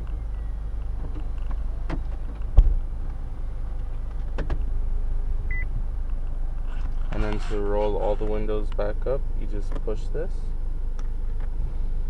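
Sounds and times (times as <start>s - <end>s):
loud thump: 2.6s - 2.8s.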